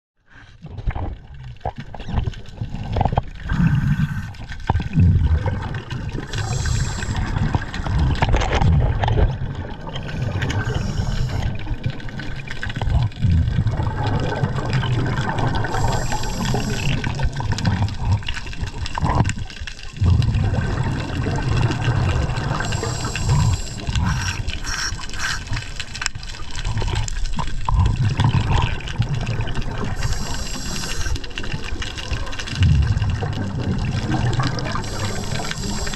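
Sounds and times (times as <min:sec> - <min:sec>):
water rushing underwater: 0:00.3 - 0:35.9
short hissing bursts: 0:06.3 - 0:07.2, 0:15.7 - 0:17.0, 0:22.6 - 0:25.6, 0:30.0 - 0:31.2, 0:34.8 - 0:35.9.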